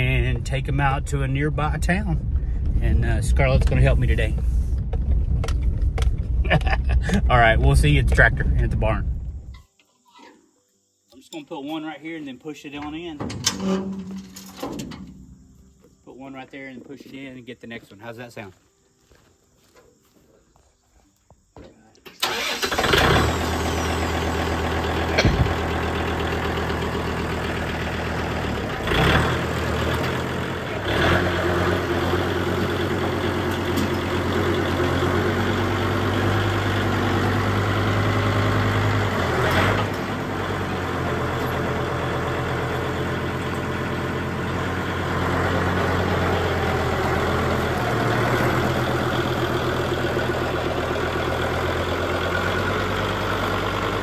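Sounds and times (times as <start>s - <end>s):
tractor diesel engine running: 0.0s - 9.6s, 22.2s - 54.0s.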